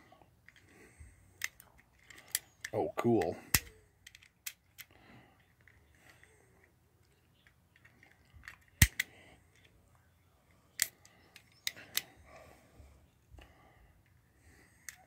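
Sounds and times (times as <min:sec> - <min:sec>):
plastic toy clicks: 0:01.4 - 0:06.2, 0:07.4 - 0:09.7.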